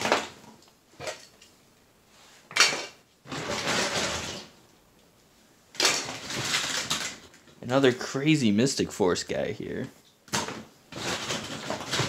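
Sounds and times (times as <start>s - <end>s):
plastic toys clattering: 0.0s - 1.5s, 2.5s - 4.6s, 5.7s - 7.6s, 10.3s - 12.0s
rummaging through bag of toys: 2.5s - 4.5s, 5.8s - 7.4s, 10.4s - 12.0s.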